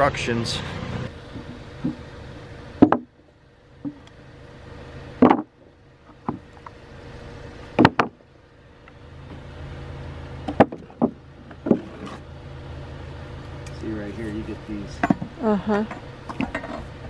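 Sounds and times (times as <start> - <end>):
wooden boards knocking: 2.8 - 3.1, 5.2 - 5.5, 7.8 - 8.2, 10.5 - 12.1.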